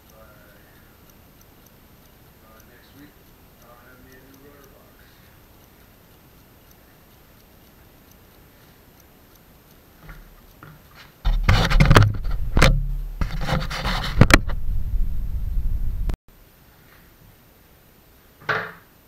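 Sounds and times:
light taps: 0:10.0 - 0:14.7
tool scraping and rubbing: 0:11.0 - 0:14.7.

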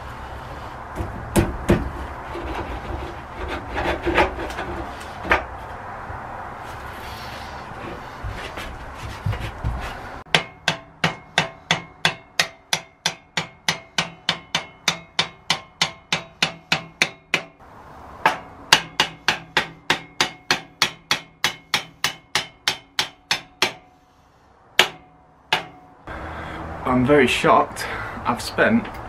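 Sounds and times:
hammer blows on metal: 0:10.3 - 0:17.6, 0:18.2 - 0:24.0.

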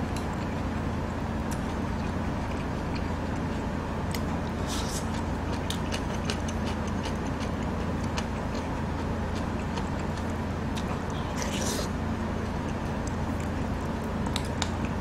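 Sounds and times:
slurp: 0:11.1 - 0:12.0.

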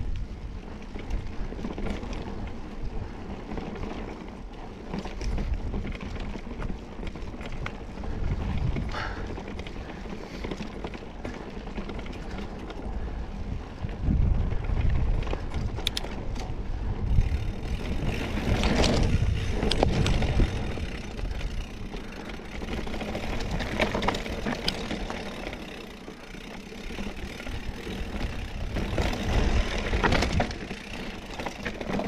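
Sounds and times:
bike rattling and knocking: 0:00.0 - 0:32.0
bike tyre noise: 0:00.0 - 0:32.0
wind buffeting microphone: 0:04.8 - 0:10.3, 0:11.2 - 0:25.8, 0:27.0 - 0:32.0.

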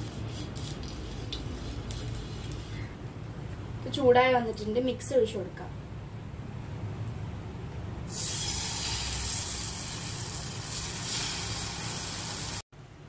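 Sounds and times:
egg sizzling in a hot pan: 0:08.1 - 0:12.6.

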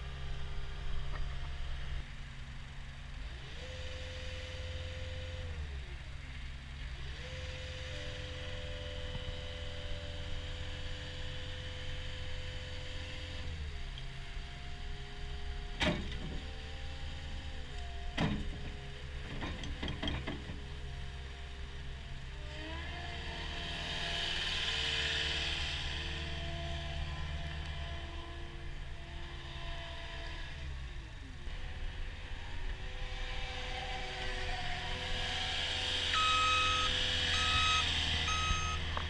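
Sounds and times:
loader diesel engine running: 0:31.3 - 0:39.0.

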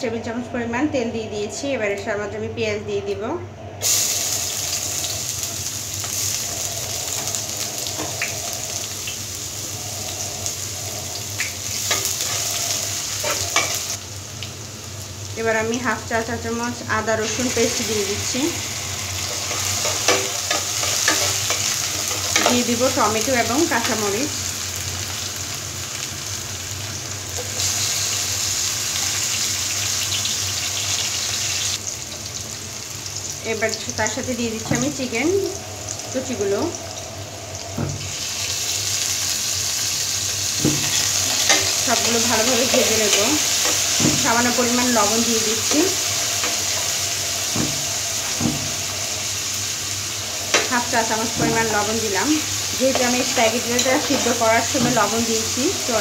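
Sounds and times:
onions sizzling in a frying pan: 0:03.8 - 0:56.0
metal spatula scraping: 0:11.8 - 0:13.9, 0:19.2 - 0:22.8.

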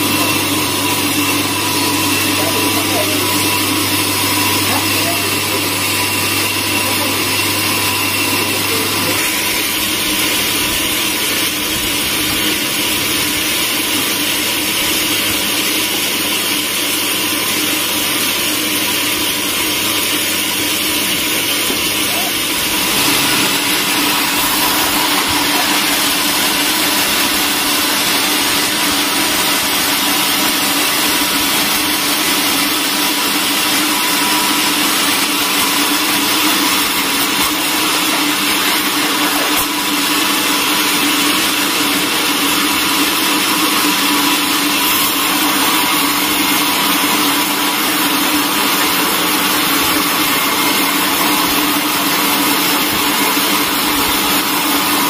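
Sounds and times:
band saw cutting timber: 0:00.0 - 0:55.0
machine hum: 0:18.3 - 0:55.0.

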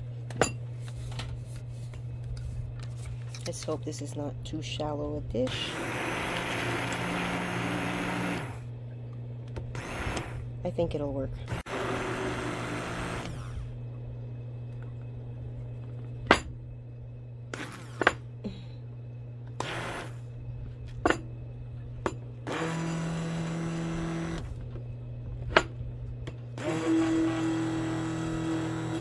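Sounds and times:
electric hand mixer whirring: 0:05.5 - 0:08.7, 0:09.7 - 0:10.6, 0:11.5 - 0:13.8, 0:19.6 - 0:20.2, 0:22.5 - 0:24.5, 0:26.6 - 0:29.0.

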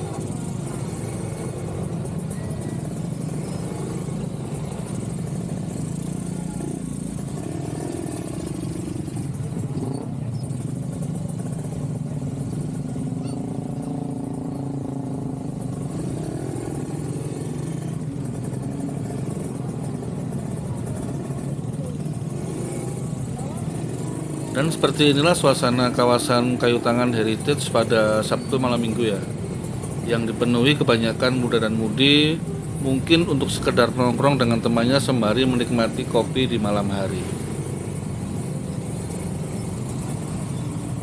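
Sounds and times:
traffic engines droning: 0:00.0 - 0:41.0.

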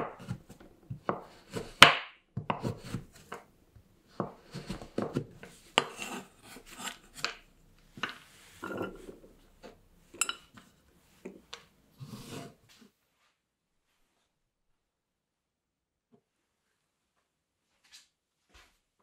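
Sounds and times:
knife cutting chocolate: 0:00.0 - 0:03.5, 0:04.1 - 0:10.4
knife scraping across board: 0:02.5 - 0:03.4, 0:04.1 - 0:09.8, 0:12.0 - 0:12.7.

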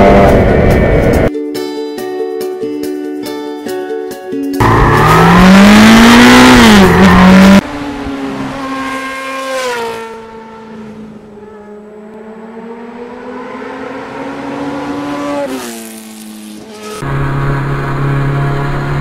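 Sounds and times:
motorcycle engines revving: 0:04.6 - 0:19.0.

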